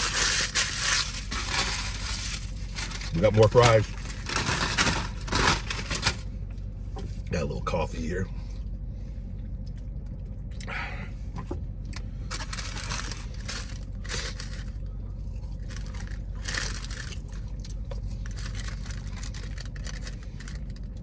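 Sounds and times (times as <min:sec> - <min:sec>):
paper wrapping rustling: 0:00.0 - 0:06.2, 0:12.3 - 0:14.8, 0:15.6 - 0:17.4, 0:18.2 - 0:20.7
steady low hum: 0:00.0 - 0:21.0.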